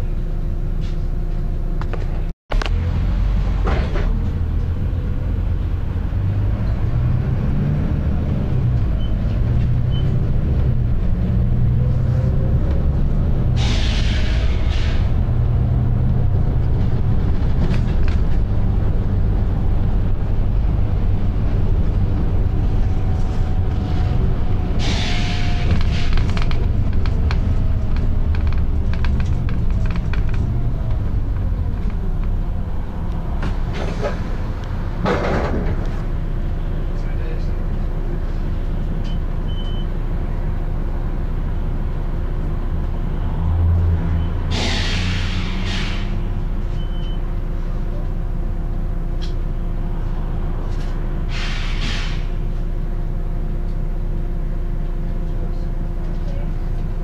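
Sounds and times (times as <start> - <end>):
bus diesel engine rumbling: 0.0 - 57.0
compressed air hiss: 44.5 - 46.2, 51.3 - 52.3.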